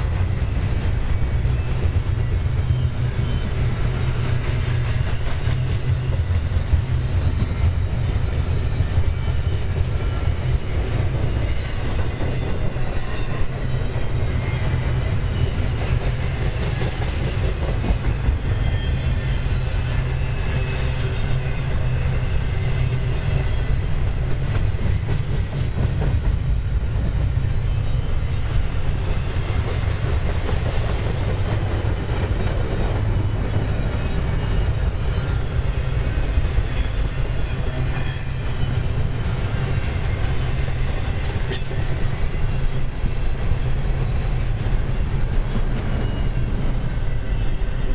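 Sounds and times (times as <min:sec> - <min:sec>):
clickety-clack over rail joints: 0:00.0 - 0:47.9
train wheels rumbling on rail: 0:00.0 - 0:47.9
faint high wheel squeals: 0:00.3 - 0:06.3, 0:07.3 - 0:16.4, 0:18.4 - 0:23.9, 0:33.0 - 0:44.4, 0:45.6 - 0:47.9.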